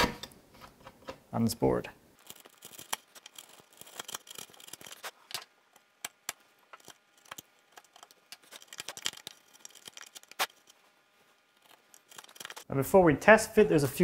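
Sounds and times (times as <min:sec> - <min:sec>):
light scrapes and crisp snicks: 0:02.2 - 0:12.7.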